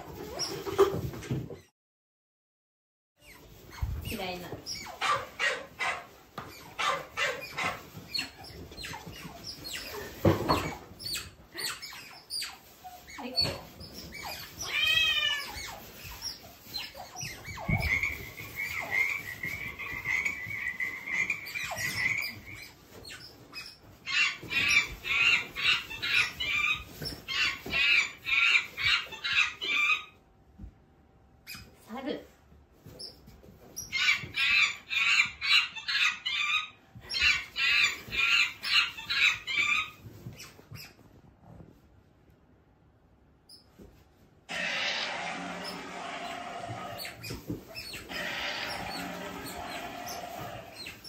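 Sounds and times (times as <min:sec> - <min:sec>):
long high-pitched animal call: 0:48.1 - 0:50.8.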